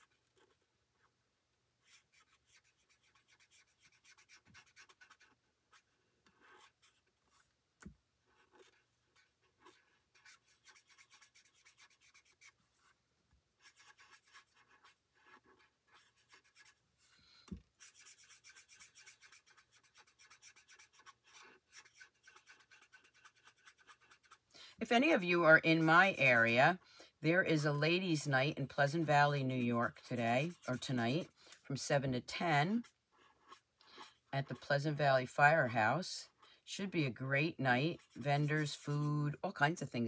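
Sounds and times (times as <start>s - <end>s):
marker scratching on cardstock: 0.0s - 1.1s, 1.8s - 7.5s, 8.3s - 13.0s, 13.6s - 16.8s, 17.7s - 24.5s, 29.8s - 31.4s, 32.7s - 34.7s, 37.8s - 39.1s.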